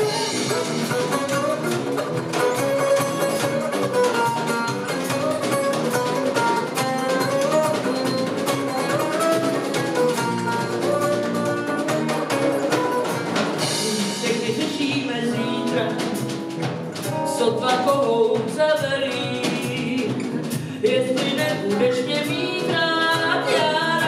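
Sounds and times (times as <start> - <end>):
cymbals: 0.0 - 3.8
electric bass guitar: 0.0 - 24.0
jazz band playing: 0.0 - 24.0.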